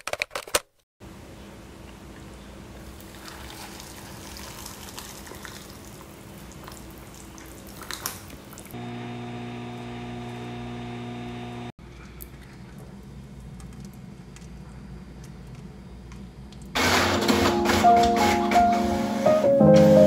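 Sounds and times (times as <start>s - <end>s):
microwave oven humming: 8.8s - 11.8s.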